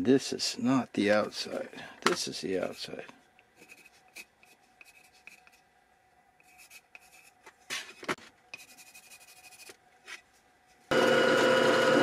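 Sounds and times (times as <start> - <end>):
pencil scratching on wood: 3.6 - 5.6, 6.4 - 7.4, 8.6 - 10.2.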